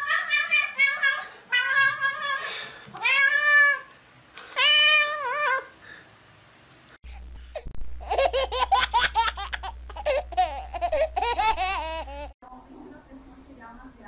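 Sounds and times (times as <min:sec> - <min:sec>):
cat meowing: 0:00.0 - 0:02.4, 0:03.0 - 0:03.9
low hum: 0:07.0 - 0:12.4.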